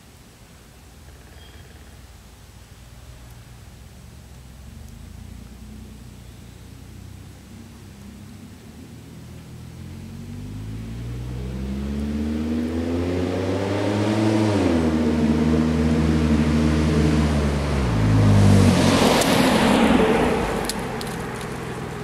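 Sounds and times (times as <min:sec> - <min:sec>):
car engine accelerating past: 0:04.7 - 0:22.0.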